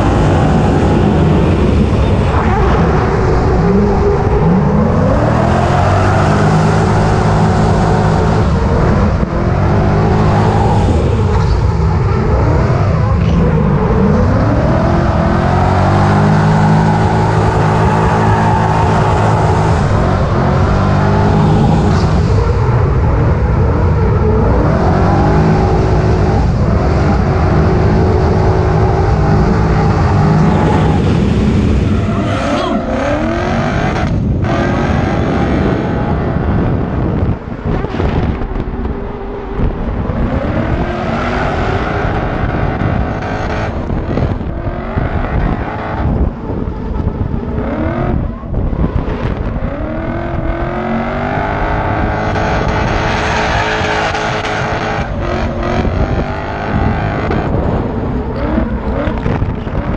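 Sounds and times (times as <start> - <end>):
car engine revving hard: 0.0 - 38.7, 39.5 - 59.9.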